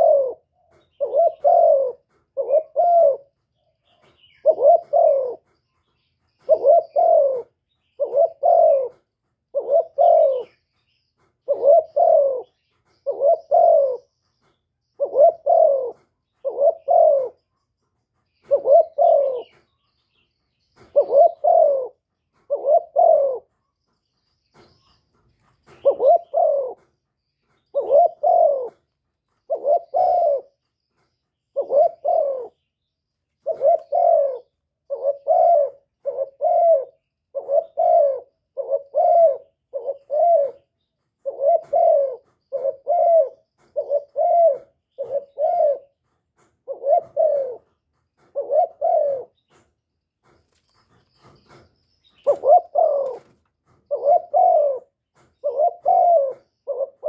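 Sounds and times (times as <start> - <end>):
dove cooing: 0.0 - 19.8, 20.7 - 49.6, 50.2 - 57.0.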